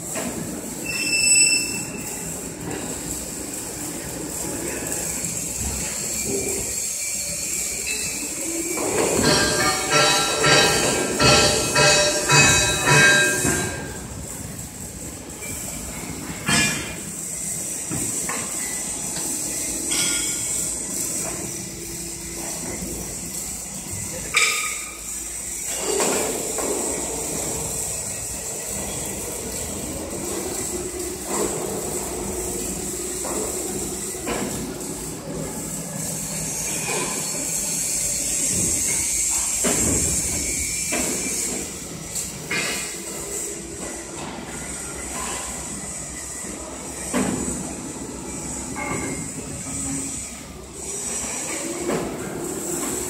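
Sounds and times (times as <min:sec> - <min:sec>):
steady workshop hiss: 0:00.0 - 0:53.0
machinery rumbles and knocks: 0:09.0 - 0:14.0.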